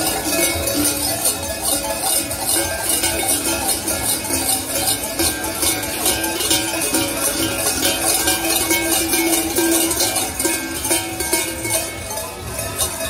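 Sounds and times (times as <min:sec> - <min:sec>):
large cowbells clanging: 0:00.0 - 0:13.0.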